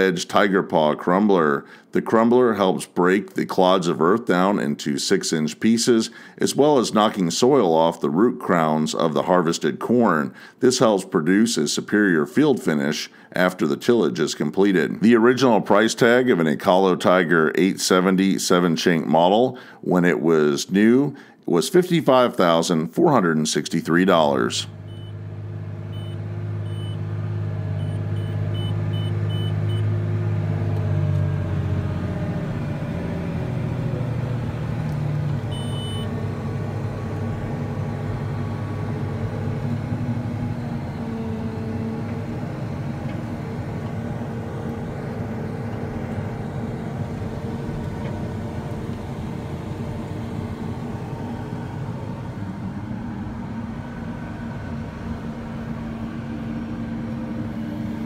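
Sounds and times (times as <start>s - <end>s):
tractor diesel engine droning: 23.8s - 58.0s
short high beeps: 35.5s - 36.1s.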